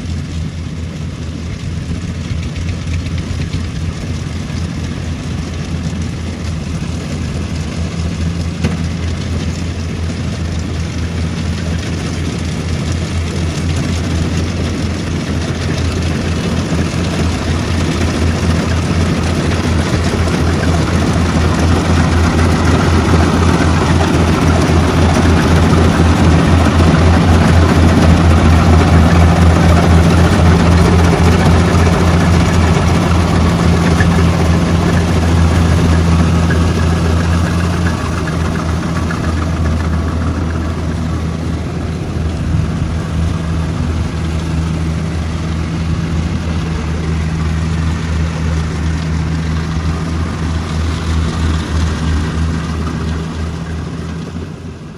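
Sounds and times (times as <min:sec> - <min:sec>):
combine harvester diesel engine: 0:00.0 - 0:54.9.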